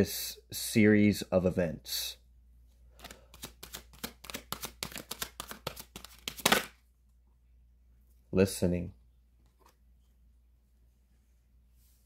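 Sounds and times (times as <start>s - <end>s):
cards being shuffled: 2.9s - 6.8s.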